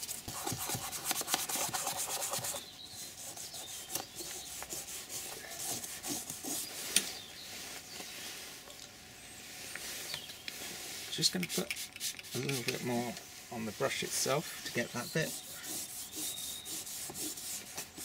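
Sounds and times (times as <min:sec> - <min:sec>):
toothbrush scrubbing leather: 0:14.7 - 0:18.0.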